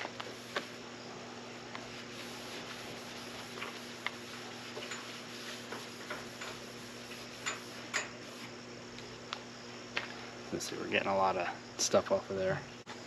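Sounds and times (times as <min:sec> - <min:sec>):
faint steady hum: 0:00.0 - 0:13.0
rag scrubbing painted surface: 0:01.7 - 0:08.5.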